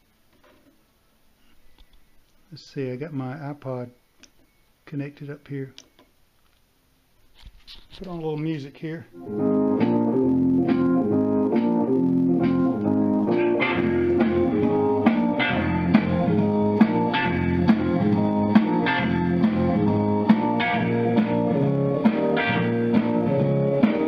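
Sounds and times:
guitar music with steady beat: 9.2s - 24.0s.

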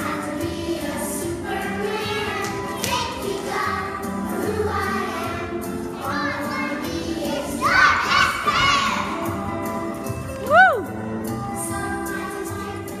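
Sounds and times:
children singing: 0.0s - 9.7s.

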